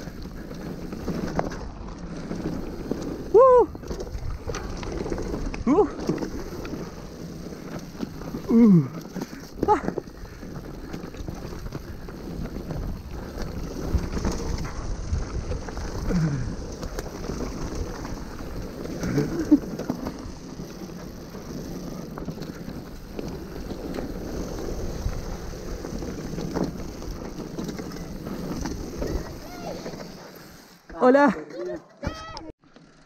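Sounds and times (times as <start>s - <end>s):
tyres rumbling on dirt: 0.0s - 31.0s
bike rattles and clicks: 0.0s - 33.0s
wind buffeting microphone: 9.7s - 19.4s.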